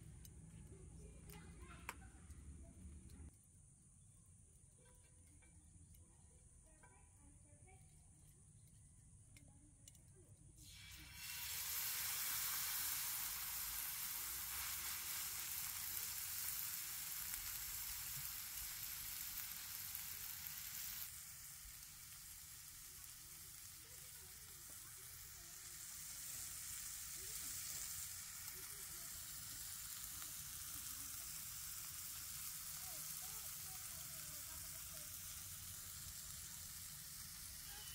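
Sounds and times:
chicken sizzling in hot oil: 0:10.6 - 0:37.9.

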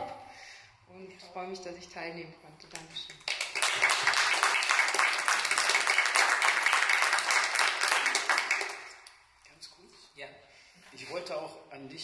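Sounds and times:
audience applause: 0:03.3 - 0:09.0.

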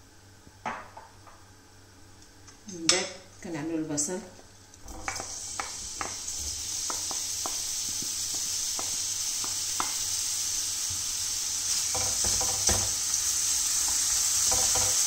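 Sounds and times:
onion sizzling in hot oil: 0:04.8 - 0:15.0
wooden spoon tapping pan: 0:05.0 - 0:06.2, 0:06.8 - 0:07.6, 0:08.3 - 0:10.0, 0:11.9 - 0:13.0, 0:13.9 - 0:15.0.

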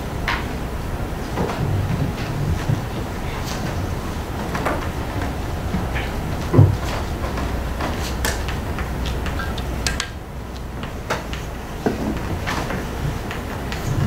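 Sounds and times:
heavy low thump: 0:00.0 - 0:09.3.

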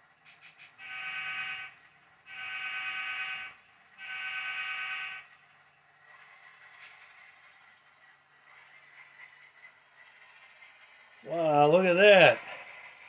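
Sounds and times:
model locomotive diesel horn: 0:00.8 - 0:05.4.

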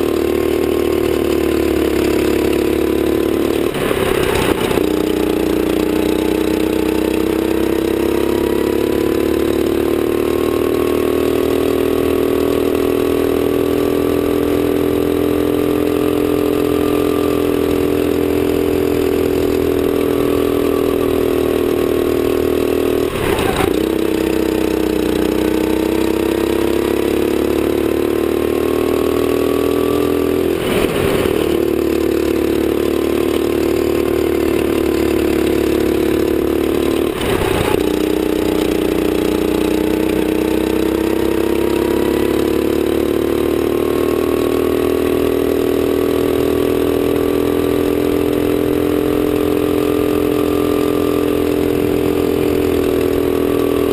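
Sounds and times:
kart engine droning: 0:00.0 - 0:53.9.

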